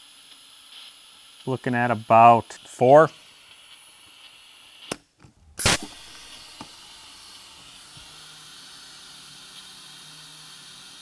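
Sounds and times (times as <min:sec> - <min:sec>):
compressed air hissing: 0:00.0 - 0:05.0, 0:05.6 - 0:11.0
sharp blast of air: 0:05.6 - 0:08.8.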